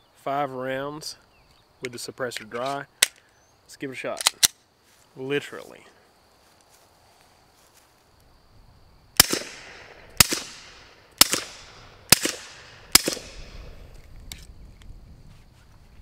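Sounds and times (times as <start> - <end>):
suppressed pistol shots: 9.2 - 13.8.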